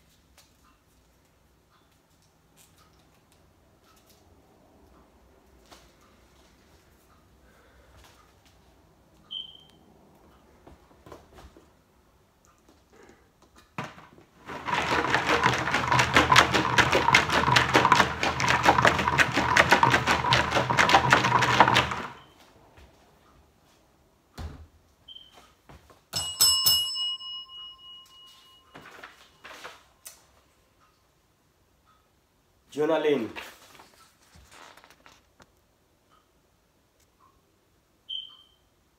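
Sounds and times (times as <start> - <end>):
paper slips rattling in plastic jug: 14.4 - 22.3
desk call bell ring: 26.1 - 29.1
paper rustling: 33.2 - 35.3.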